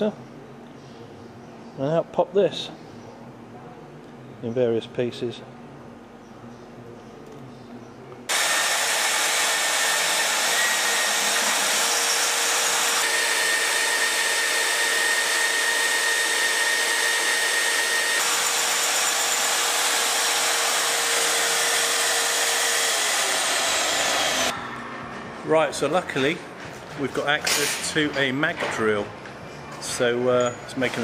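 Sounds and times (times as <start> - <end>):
magnetic drill motor whining: 8.3 - 24.5.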